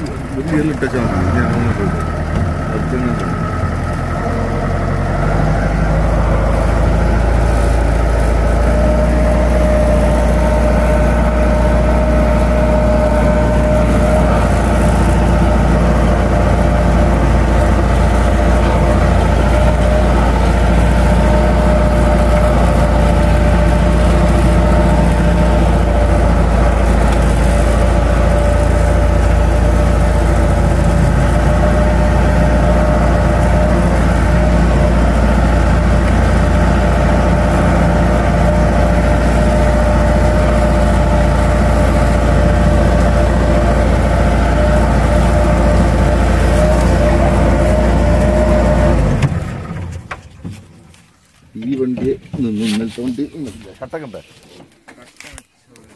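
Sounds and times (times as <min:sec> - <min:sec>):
car engine rumbling in cabin: 0:00.0 - 0:55.1.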